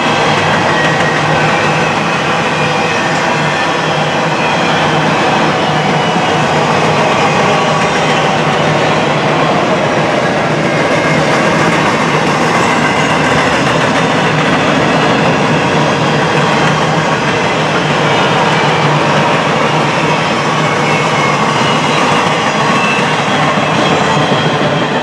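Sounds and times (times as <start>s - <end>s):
freight wheels rumbling on rail: 0.0s - 25.0s.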